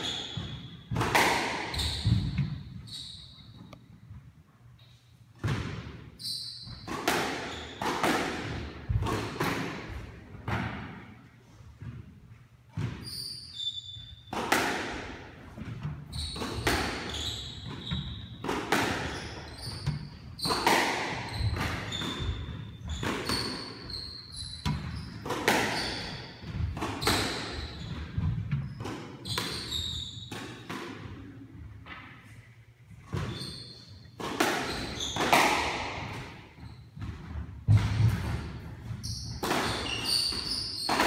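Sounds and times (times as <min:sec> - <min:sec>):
squash ball cracking off rackets and walls: 0:00.0 - 0:02.7, 0:06.6 - 0:11.1, 0:14.3 - 0:31.2, 0:34.2 - 0:41.0
shoes squeaking on hardwood floor: 0:01.6 - 0:04.0, 0:13.0 - 0:14.3, 0:16.0 - 0:18.4, 0:19.0 - 0:30.3, 0:33.1 - 0:35.4, 0:38.8 - 0:41.0.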